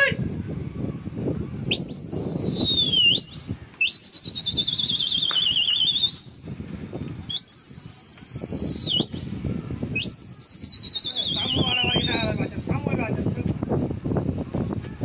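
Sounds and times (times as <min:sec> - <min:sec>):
person whistling: 0:01.7 - 0:06.6, 0:07.3 - 0:09.2.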